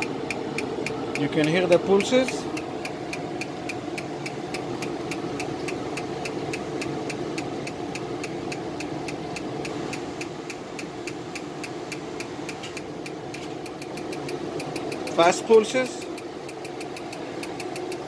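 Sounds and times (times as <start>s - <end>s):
laser clicking pulses: 0.0s - 18.0s
machine humming: 0.0s - 18.0s.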